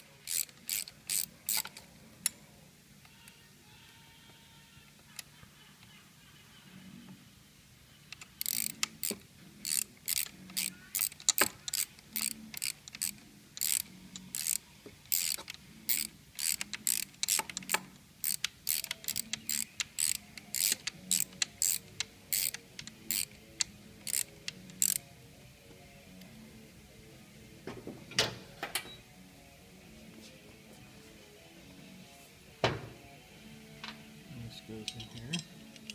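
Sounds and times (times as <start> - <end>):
ratchet wrench clicking: 0.2 - 1.8, 8.1 - 25.0.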